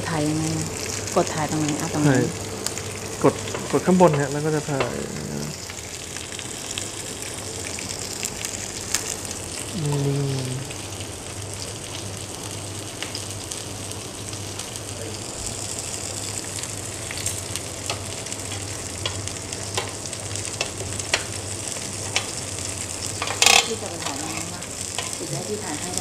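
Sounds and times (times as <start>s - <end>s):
steak sizzling on grill pan: 0.0s - 9.8s, 10.7s - 26.0s
low steady hum: 0.0s - 26.0s
fat popping and crackling: 16.2s - 26.0s.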